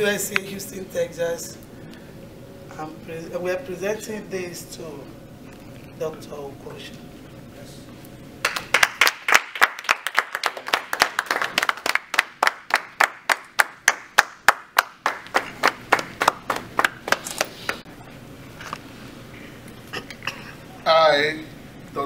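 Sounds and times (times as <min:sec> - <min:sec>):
audience applauding: 0:08.4 - 0:17.8
sharp claps close by: 0:08.4 - 0:17.8.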